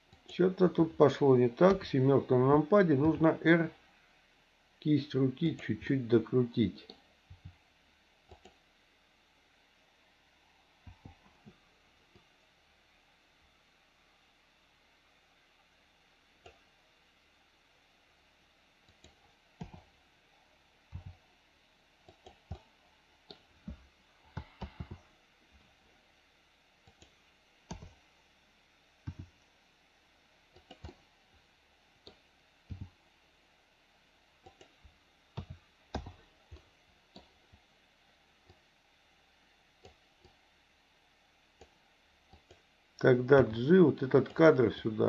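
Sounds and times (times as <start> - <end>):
computer mouse buttons clicking: 8.3 - 8.6, 18.9 - 19.9, 20.9 - 21.2, 22.0 - 22.7, 23.3 - 25.0, 26.8 - 28.0, 29.0 - 29.3, 30.5 - 31.0, 32.0 - 33.0, 34.4 - 34.8, 35.4 - 37.4, 39.8 - 40.4, 41.6 - 42.6.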